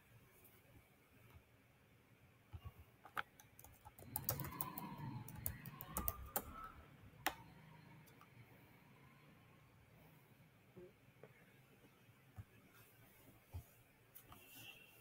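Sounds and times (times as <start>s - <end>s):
faint keyboard typing: 2.5s - 8.4s.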